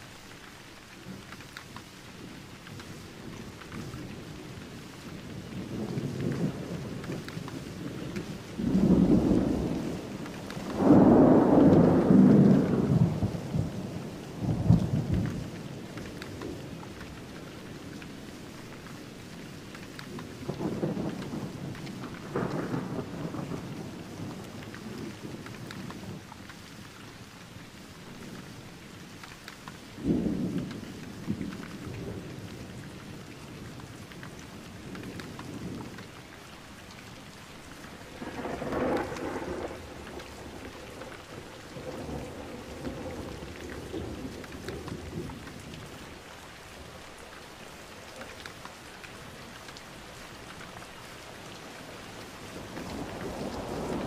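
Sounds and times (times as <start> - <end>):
steady rain: 0.0 - 54.0
thunder rumbling: 2.7 - 18.5, 19.8 - 26.3, 30.0 - 36.1, 37.2 - 47.2, 52.3 - 54.0.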